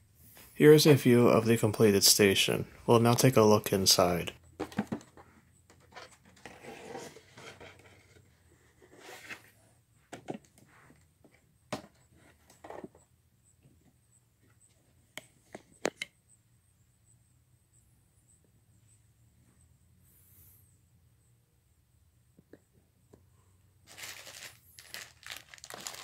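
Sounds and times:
soft rustle: 23.9s - 26.0s.

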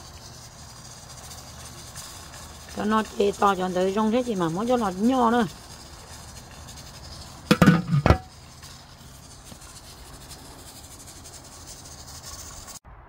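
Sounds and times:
glass lid clattering on metal pot: 7.5s - 8.3s.

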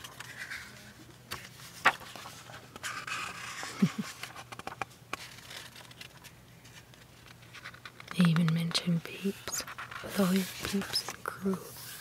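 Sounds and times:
book pages turning: 0.0s - 12.0s
paper rustling: 0.0s - 12.0s.

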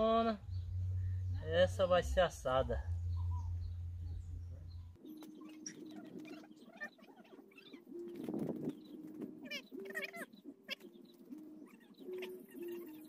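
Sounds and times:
low rumble: 0.0s - 5.0s
bird chirps: 0.0s - 13.0s
farmyard animal calls: 3.1s - 13.0s.

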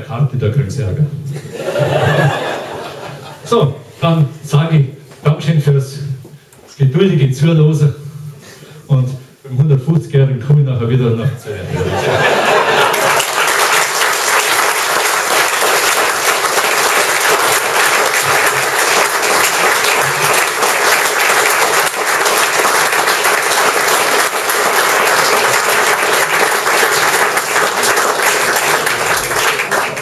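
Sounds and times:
audience applauding: 11.9s - 30.0s.

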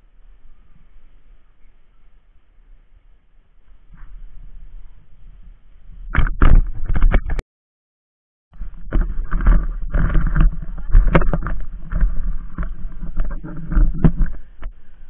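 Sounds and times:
bicycle knocks and rattles: 6.0s - 7.4s, 8.6s - 14.8s
wind and road rumble: 8.6s - 15.0s.

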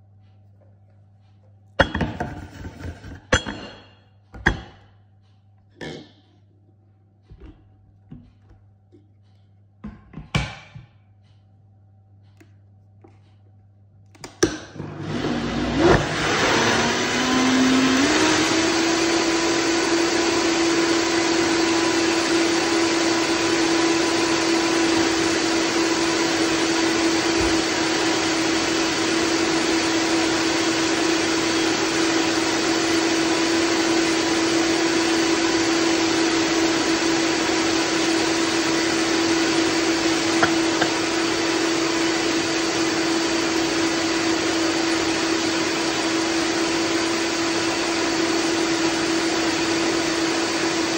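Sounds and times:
blender motor running: 14.6s - 50.9s
blender lid knocking: 40.3s - 41.3s.

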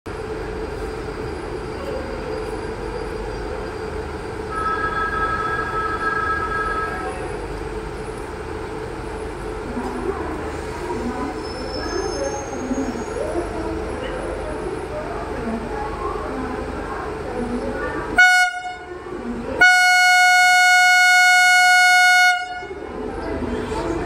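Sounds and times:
electric locomotive humming: 0.1s - 24.0s
two-tone train horn: 18.2s - 18.9s, 19.6s - 22.8s.

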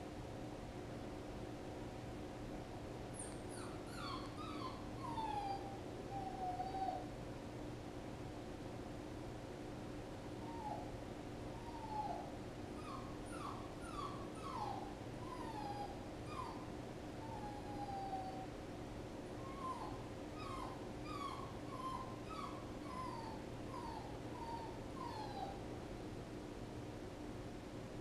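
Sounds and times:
puppy whining: 3.1s - 7.1s, 10.4s - 18.6s, 19.2s - 25.7s.

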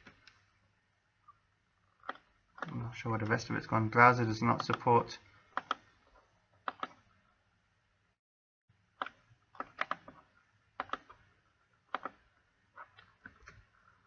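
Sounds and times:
computer mouse clicks: 2.0s - 2.8s, 5.5s - 5.9s, 6.6s - 7.0s, 9.0s - 10.2s, 10.8s - 11.2s, 11.9s - 12.2s
keyboard keystrokes: 6.6s - 7.0s, 10.8s - 11.2s, 11.9s - 12.2s.

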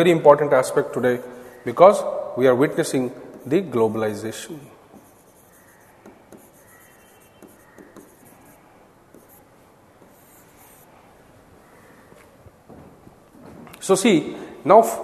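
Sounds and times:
marker writing on whiteboard glass: 3.3s - 3.8s, 4.9s - 10.9s.

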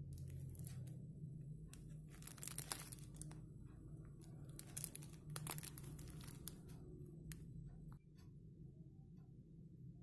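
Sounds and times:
plastic wrapper crinkling and tearing: 0.1s - 0.9s, 1.8s - 3.4s, 4.5s - 6.7s.

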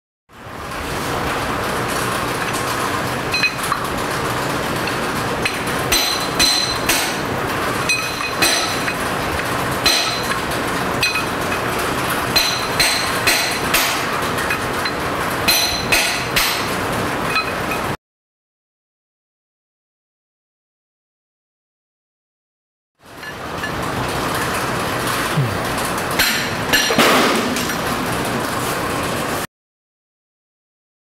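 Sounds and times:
hammer striking metal: 5.9s - 7.2s, 7.9s - 9.0s, 9.8s - 10.4s, 12.4s - 14.1s, 15.5s - 16.7s.

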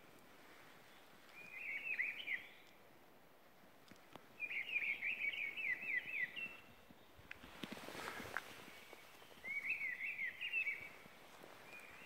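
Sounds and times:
small songbird singing: 0.9s - 2.8s, 4.3s - 12.0s.

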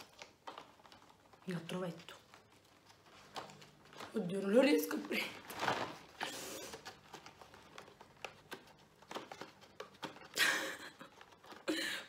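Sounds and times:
cardboard rustle: 0.0s - 11.7s.

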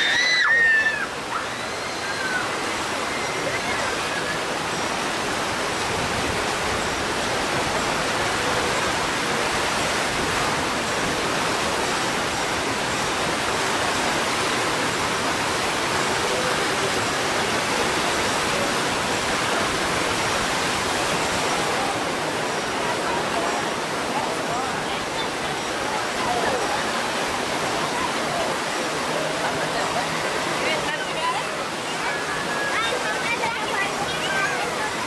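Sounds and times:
rushing white water: 0.0s - 35.0s.

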